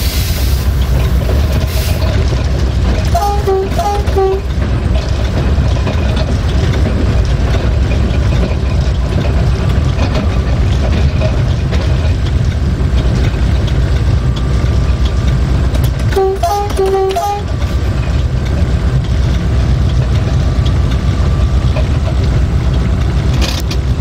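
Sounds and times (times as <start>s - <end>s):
locomotive engine and wheel rumble: 0.0s - 24.0s
air horn: 3.1s - 4.5s, 16.1s - 17.5s.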